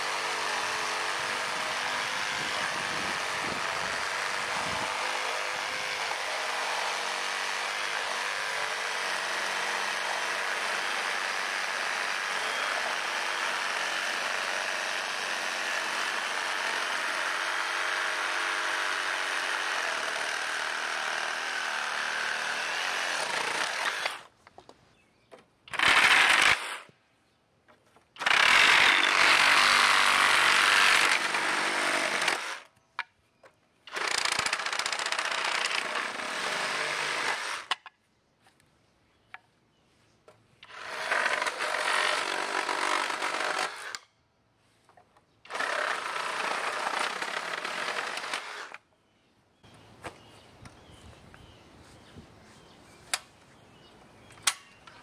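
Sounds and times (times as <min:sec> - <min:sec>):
reciprocating saw cutting wood: 0:00.0 - 0:24.3, 0:25.7 - 0:26.9, 0:28.2 - 0:32.7, 0:33.9 - 0:37.8, 0:40.6 - 0:44.1, 0:45.5 - 0:48.8.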